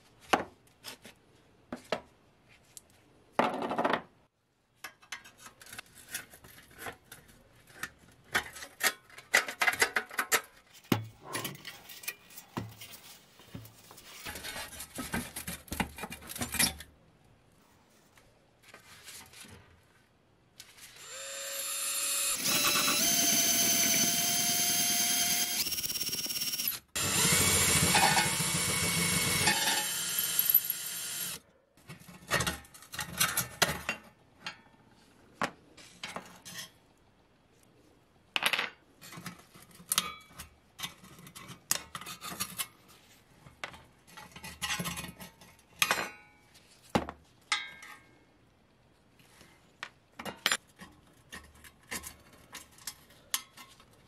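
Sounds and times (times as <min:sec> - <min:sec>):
cordless drill whining: 0:21.0 - 0:31.4.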